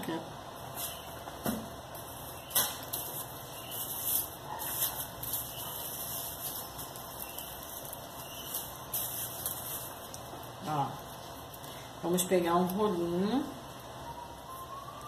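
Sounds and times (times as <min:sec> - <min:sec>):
plastic bag crinkling: 0:02.0 - 0:11.9.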